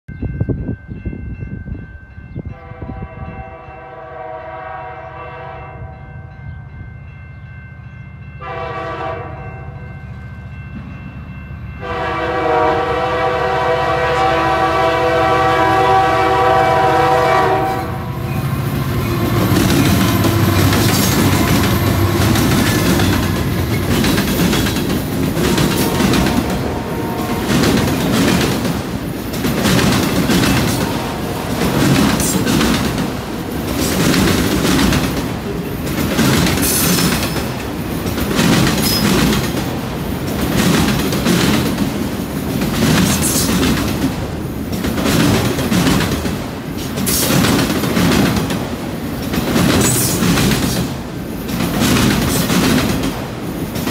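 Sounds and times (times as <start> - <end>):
locomotive air horn blasts: 2.5 - 6.1, 8.4 - 9.8, 11.8 - 18.4, 25.4 - 27.7, 30.6 - 32.4
train wheels clacking over rail joints: 19.0 - 53.9.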